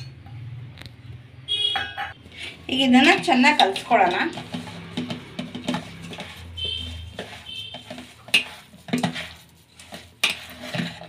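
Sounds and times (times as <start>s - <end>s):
hand mixing batter squishing: 2.2s - 11.0s.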